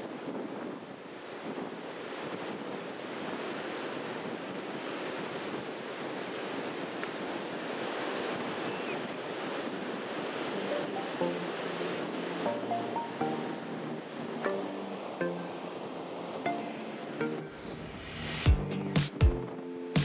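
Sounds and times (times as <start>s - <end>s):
wind buffeting microphone: 0.0s - 12.4s
ocean surf washing onto beach: 0.0s - 19.6s
faint music: 10.3s - 20.0s.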